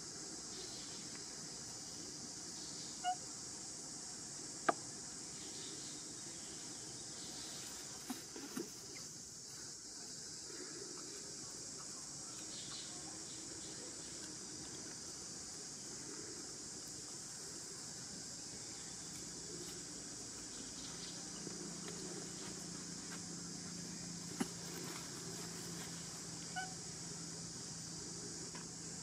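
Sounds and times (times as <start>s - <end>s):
high insect drone: 0.0s - 29.0s
short pitched squeak: 26.5s - 26.8s.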